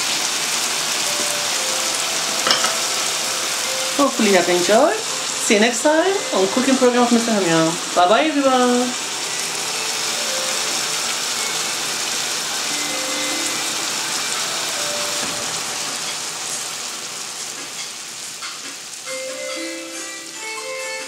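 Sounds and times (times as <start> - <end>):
food sizzling in a frying pan: 0.0 - 21.0.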